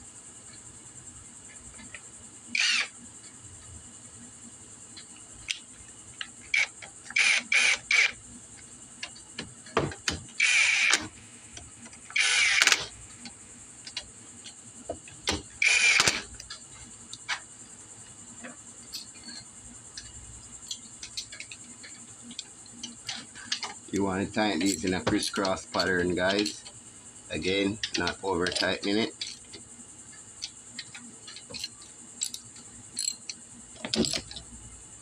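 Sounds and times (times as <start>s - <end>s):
socket ratchet clicking: 10.4s - 11.1s, 12.1s - 12.9s, 30.4s - 34.5s
small metal clicks: 18.9s - 23.7s, 27.8s - 34.5s.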